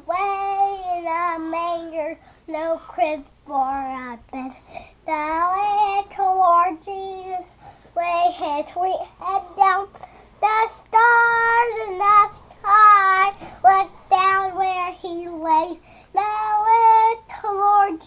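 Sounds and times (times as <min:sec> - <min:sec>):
boy singing held notes: 0:05.6 - 0:18.0.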